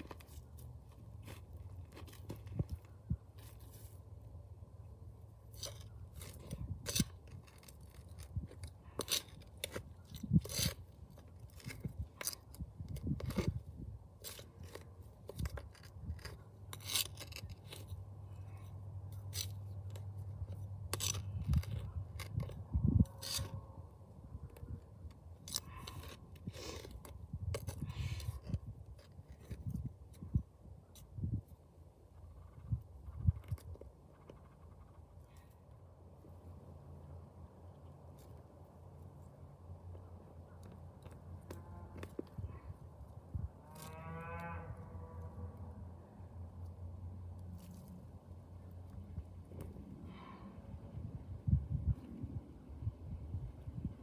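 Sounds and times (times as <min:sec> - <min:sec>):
hand tool scraping soil and concrete: 0:00.0 - 0:04.2, 0:05.3 - 0:23.7, 0:24.7 - 0:31.3.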